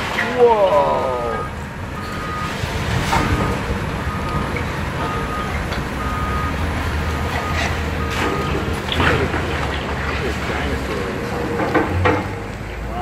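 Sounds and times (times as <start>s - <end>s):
excavator diesel engine droning: 0.0s - 13.0s
reversing alarm beeping: 0.8s - 8.8s
debris crashing and clattering: 1.9s - 12.6s.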